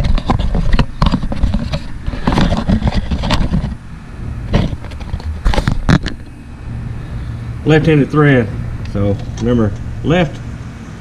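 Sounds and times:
handling clicks and scraping: 0:00.0 - 0:03.8, 0:04.5 - 0:06.4
low rumble: 0:03.7 - 0:11.0.

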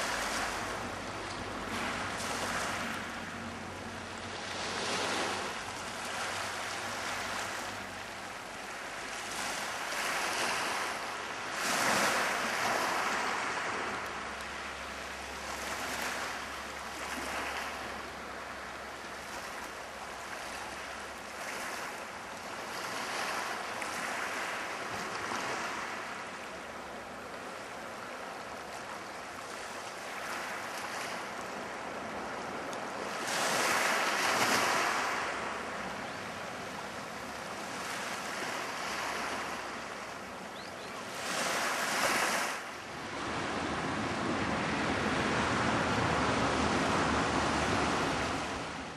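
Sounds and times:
sea surf washing on shore: 0:00.0 - 0:48.9.

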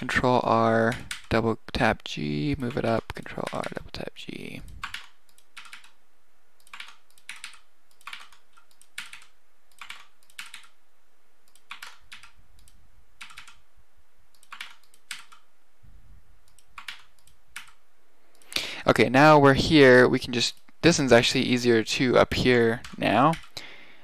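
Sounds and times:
keyboard keystrokes: 0:04.8 - 0:06.0, 0:06.6 - 0:10.8, 0:11.5 - 0:13.6, 0:14.3 - 0:15.4, 0:16.5 - 0:17.8.

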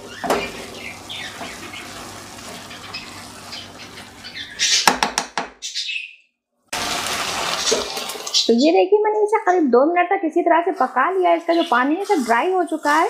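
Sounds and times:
rice and vegetables sizzling: 0:00.0 - 0:04.2, 0:06.7 - 0:08.7, 0:11.1 - 0:13.0
spatula scraping a wok: 0:07.1 - 0:08.4, 0:11.4 - 0:13.0.

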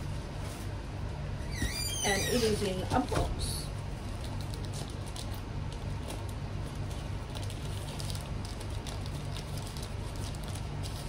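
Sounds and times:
steady low hum: 0:00.0 - 0:11.0
plastic bag crinkling: 0:03.8 - 0:11.0
small crackles: 0:03.9 - 0:11.0.

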